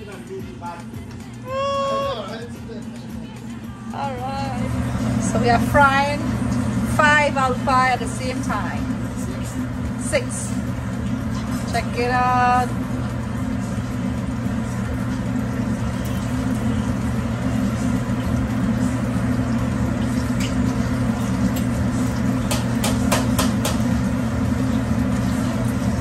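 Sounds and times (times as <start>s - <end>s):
low mechanical hum: 0.0s - 26.0s
food deep-frying in oil: 8.1s - 26.0s.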